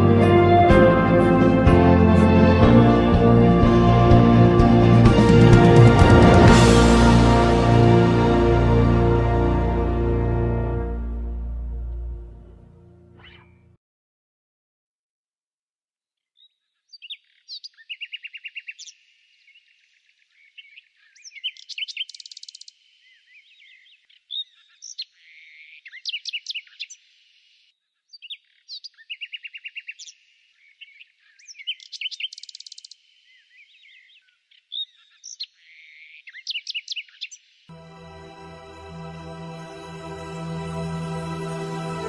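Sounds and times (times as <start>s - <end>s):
songbirds chirping and trilling: 16.2s - 37.7s.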